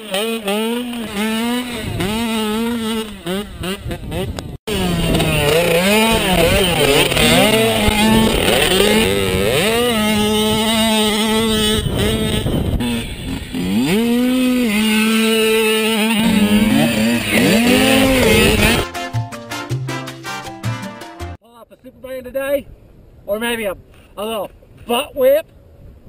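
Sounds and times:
dirt bike engine revving: 0.0 - 19.1.

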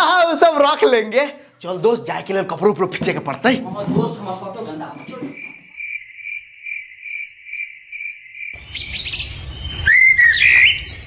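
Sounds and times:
birds chirping: 4.5 - 11.0
cricket chirping: 4.9 - 11.0.

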